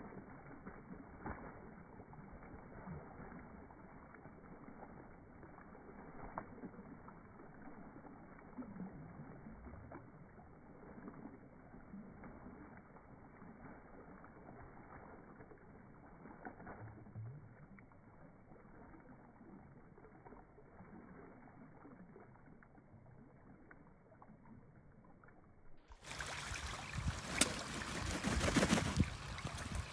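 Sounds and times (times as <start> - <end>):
duck splashing in water: 0.0 - 8.4, 9.8 - 16.8, 26.0 - 29.9
wings beating water: 0.0 - 17.2, 25.9 - 29.9
sharp water slap: 26.0 - 29.9.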